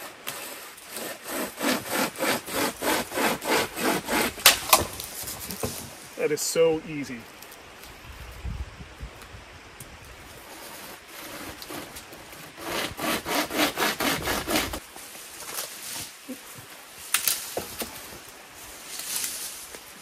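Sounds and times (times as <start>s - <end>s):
pull saw cutting green wood: 0.0s - 4.9s, 10.4s - 14.8s
leafy branch rustling: 3.8s - 12.3s, 14.8s - 20.0s
branch cracking: 4.4s - 5.8s, 17.0s - 18.0s.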